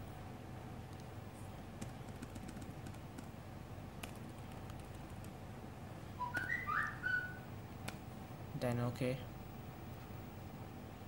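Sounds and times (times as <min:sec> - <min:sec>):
low background hum: 0:00.0 - 0:11.0
keyboard keystrokes: 0:01.8 - 0:03.3, 0:04.0 - 0:05.4
high chirping sound: 0:06.2 - 0:07.5.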